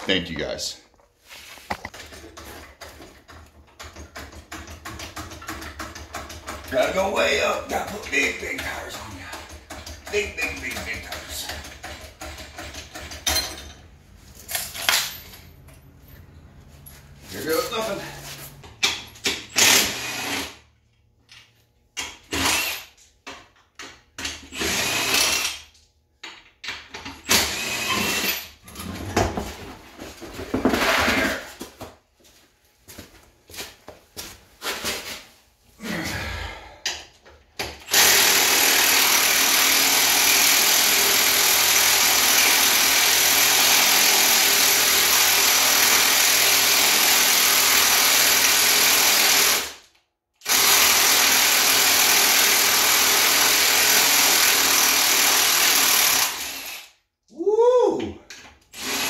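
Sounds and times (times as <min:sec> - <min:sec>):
power tool bursts: 0:19.5 - 0:20.6, 0:24.5 - 0:25.6, 0:37.9 - 0:49.8, 0:50.4 - 0:57.0.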